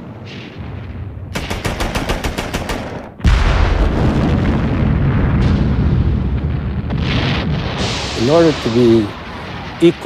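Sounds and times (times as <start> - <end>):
heavy explosion rumble: 0.0 - 1.6, 3.2 - 10.0
machine-gun fire: 1.3 - 4.8.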